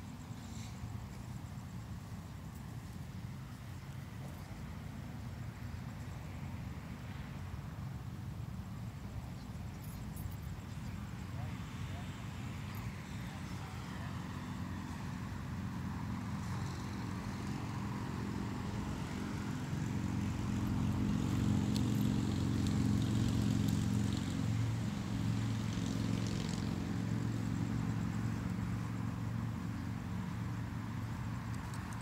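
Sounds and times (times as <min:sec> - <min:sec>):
passing motor vehicle engine drone: 0:09.8 - 0:32.0.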